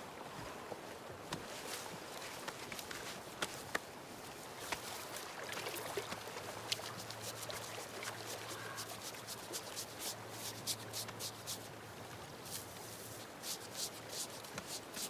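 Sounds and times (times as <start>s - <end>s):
small clicks and rustles: 1.3s - 3.9s
water trickling: 4.8s - 15.0s.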